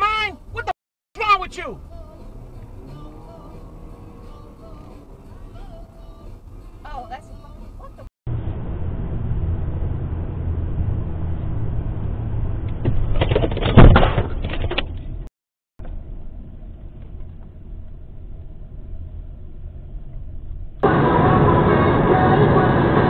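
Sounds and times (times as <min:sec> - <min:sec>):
car road and engine rumble: 0:00.0 - 0:23.0
loud car crash with rattling: 0:12.8 - 0:14.8.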